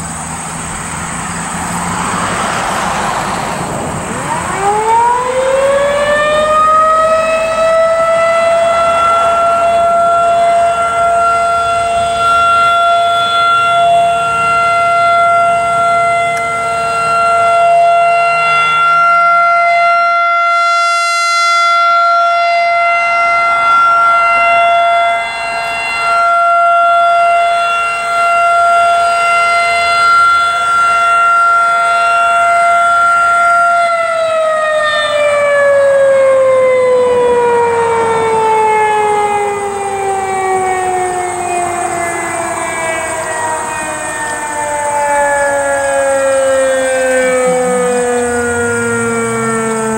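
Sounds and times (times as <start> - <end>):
rotating warning siren: 0.0 - 49.9.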